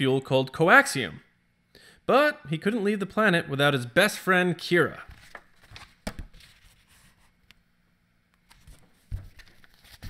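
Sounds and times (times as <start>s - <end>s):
book pages rustling: 5.0s - 7.4s, 8.5s - 10.0s.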